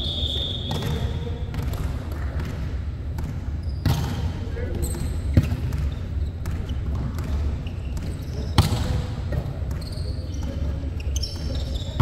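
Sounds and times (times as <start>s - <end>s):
indoor hall hum: 0.0s - 12.0s
volleyball struck with a slap: 0.7s - 4.3s, 8.0s - 9.8s.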